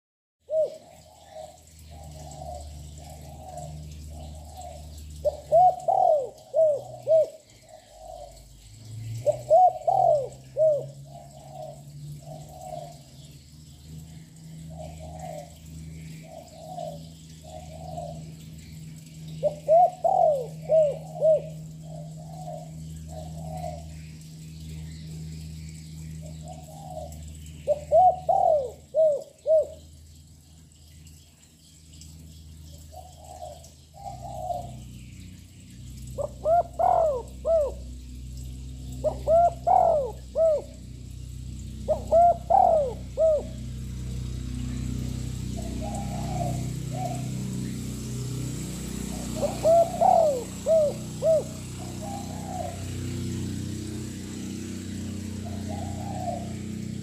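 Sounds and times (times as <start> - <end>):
dove cooing: 0.5 - 8.5, 9.1 - 13.2, 14.6 - 18.5, 19.4 - 24.1, 26.2 - 29.9, 32.8 - 34.9, 36.0 - 41.0, 41.6 - 44.1, 44.7 - 47.7, 48.6 - 53.5, 54.3 - 57.0.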